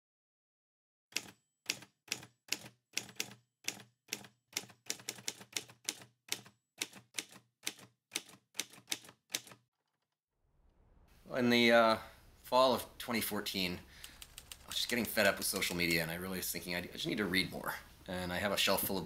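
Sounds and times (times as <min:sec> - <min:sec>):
typewriter keys clacking: 0:01.2 - 0:09.6.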